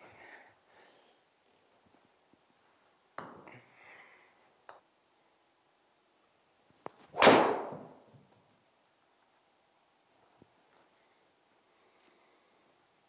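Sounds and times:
golf club striking ball: 0:07.2 - 0:07.9.

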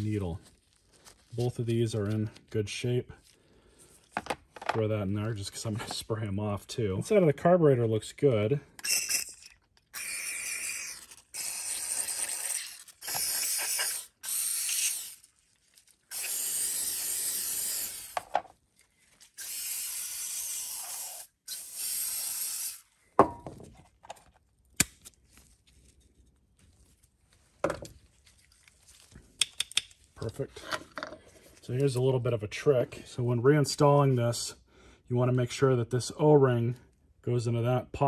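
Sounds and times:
plastic parts clicking and knocking: 0:04.1 - 0:04.8, 0:18.1 - 0:18.6
aerosol spray hissing: 0:13.0 - 0:15.2, 0:16.1 - 0:18.2, 0:19.4 - 0:22.8.

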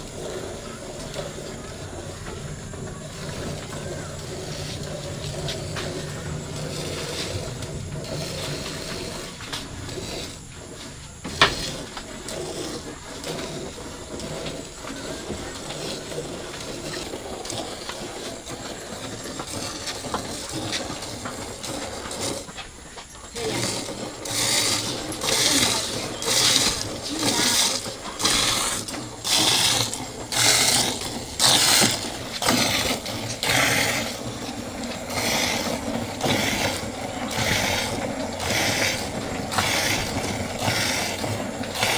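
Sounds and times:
milk squirting into bucket: 0:23.4 - 0:41.9.

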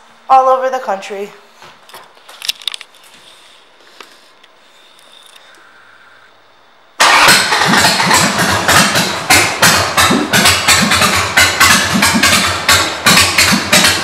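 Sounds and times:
motorcycle engine running: 0:07.1 - 0:14.0.

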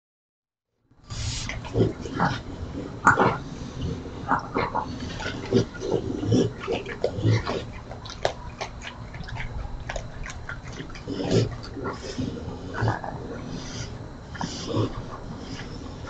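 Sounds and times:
animals crunching and chewing food: 0:01.1 - 0:16.0.

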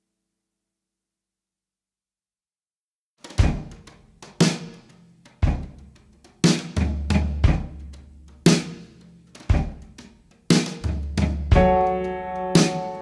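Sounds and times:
bass drum and snare beat: 0:03.2 - 0:13.0.

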